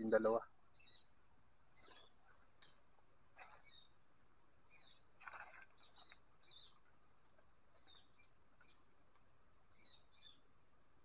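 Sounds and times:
squirrel chirping: 3.4s - 3.9s, 9.7s - 10.4s.

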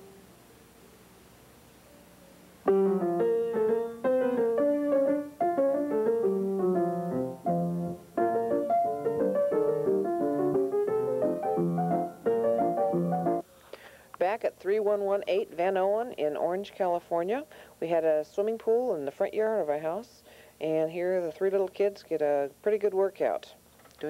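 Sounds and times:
piano music: 2.6s - 13.4s.

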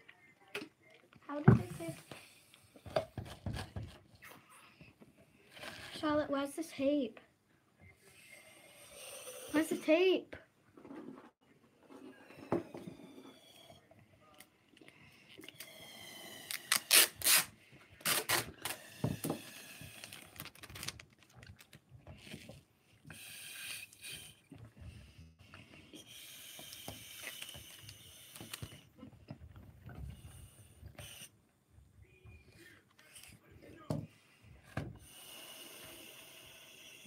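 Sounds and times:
breathy hissing and rustling: 14.9s - 20.9s, 22.2s - 29.2s, 32.6s - 37.0s
balloon squeaking: 15.9s - 20.9s
tape clicks and crackles: 20.0s - 22.4s.

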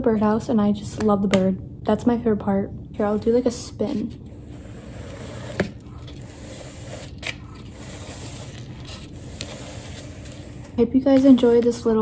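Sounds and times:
paper plate scraping on wood: 3.8s - 11.5s.

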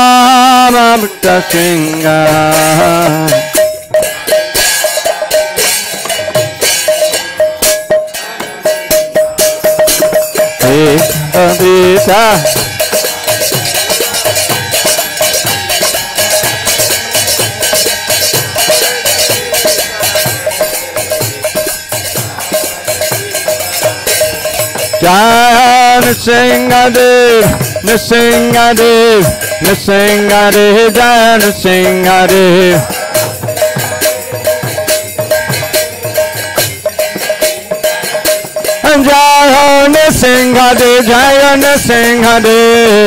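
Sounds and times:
drums beating: 0.0s - 43.0s
hand cymbals clashing: 0.0s - 43.0s
voices singing: 0.0s - 43.0s.

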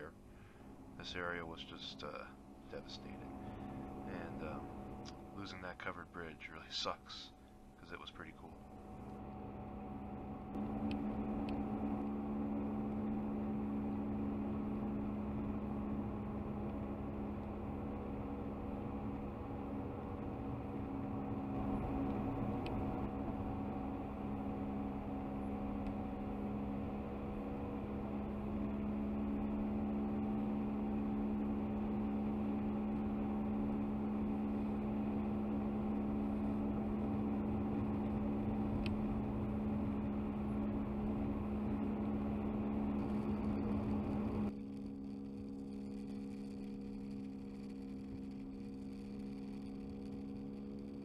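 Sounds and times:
car engine hum: 0.0s - 51.0s
road and tyre rumble: 8.8s - 45.2s.

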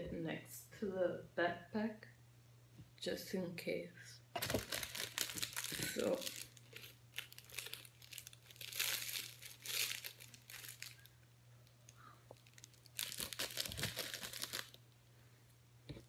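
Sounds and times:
crinkly rustling: 4.4s - 11.1s, 11.9s - 14.8s.

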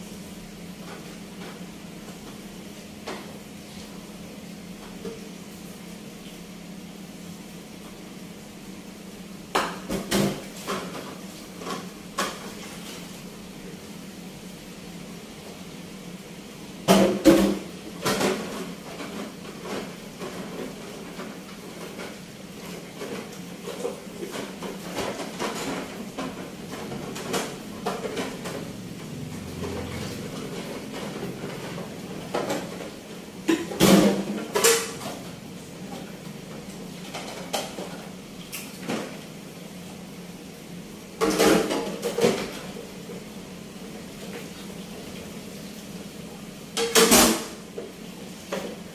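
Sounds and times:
dishes clattering: 30.5s - 35.3s, 36.9s - 38.1s, 46.8s - 47.6s.

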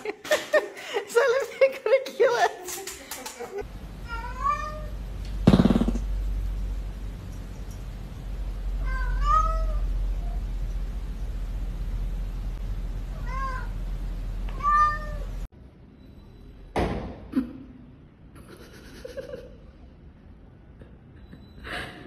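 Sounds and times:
low background rumble: 3.6s - 15.5s
steady low hum: 3.6s - 15.9s
cat meowing: 4.0s - 5.0s, 8.8s - 10.4s, 14.5s - 15.3s
sharp knock: 5.4s - 6.1s.

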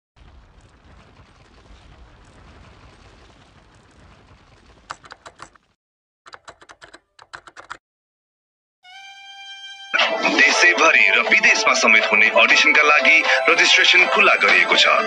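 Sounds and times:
wall crumbling rumble: 0.2s - 5.7s
rapid typewriter key clicks: 6.3s - 7.8s.

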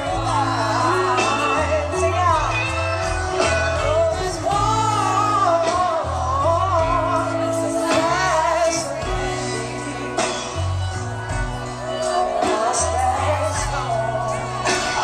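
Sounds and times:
live band playing ballad: 0.0s - 15.0s
woman singing: 3.7s - 10.9s, 11.6s - 15.0s.

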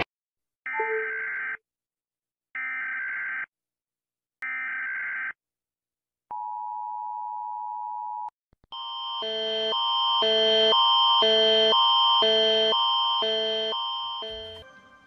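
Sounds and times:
two-tone attention signal: 12.2s - 14.7s.

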